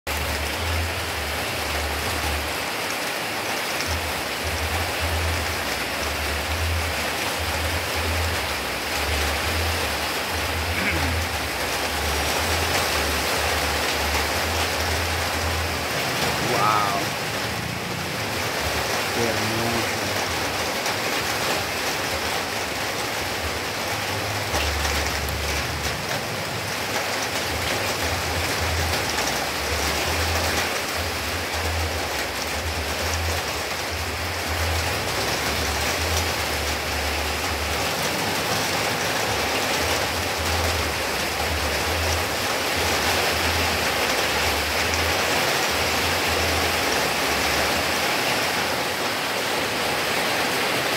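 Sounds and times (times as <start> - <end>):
heavy rain falling: 0.1 - 50.9.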